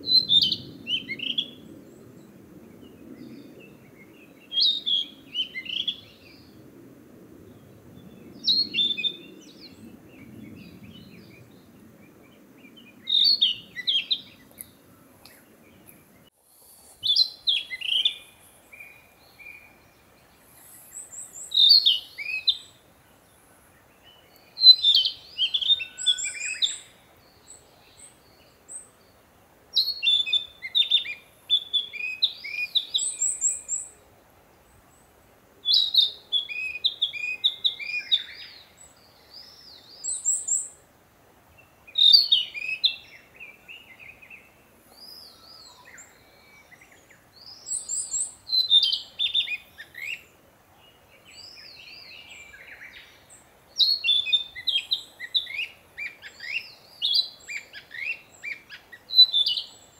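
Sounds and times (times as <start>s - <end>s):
bird singing whistled phrases: 0.0s - 1.6s, 4.5s - 6.1s, 13.0s - 14.4s, 21.2s - 22.7s, 24.5s - 27.0s, 29.8s - 33.9s, 35.7s - 38.6s, 41.9s - 43.8s, 45.1s - 50.2s, 53.8s - 59.9s.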